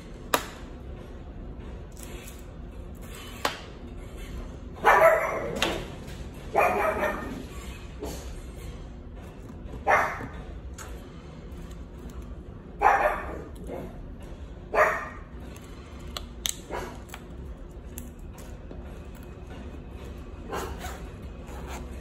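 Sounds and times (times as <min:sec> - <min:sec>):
dog barking: 0:04.8 - 0:05.6, 0:06.5 - 0:07.5, 0:09.8 - 0:10.4, 0:12.8 - 0:13.9, 0:14.7 - 0:15.3, 0:20.5 - 0:21.0.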